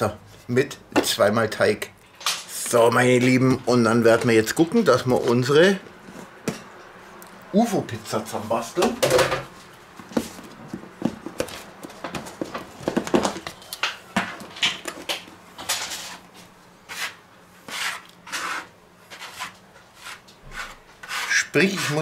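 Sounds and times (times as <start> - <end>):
scraper sweeping on wooden board: 16.9 - 22.0.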